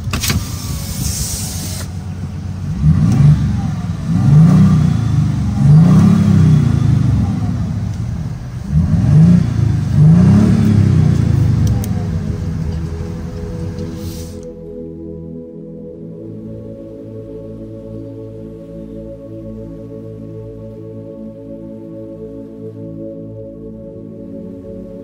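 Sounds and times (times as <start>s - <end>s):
car engine revving: 0.0s - 14.9s.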